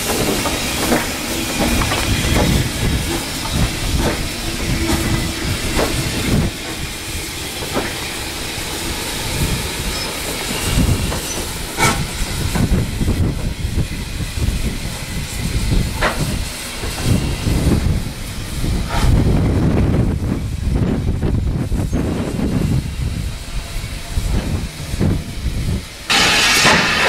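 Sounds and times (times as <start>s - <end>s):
steam hissing: 0.0s - 27.0s
steam locomotive moving slowly: 0.0s - 27.0s
sharp metal clanks: 26.1s - 27.0s.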